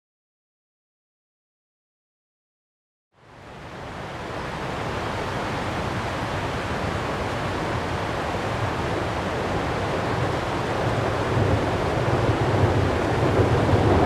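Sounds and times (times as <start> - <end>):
river water rushing over rapids: 3.2 - 14.0
wind rumble on microphone: 3.4 - 14.0.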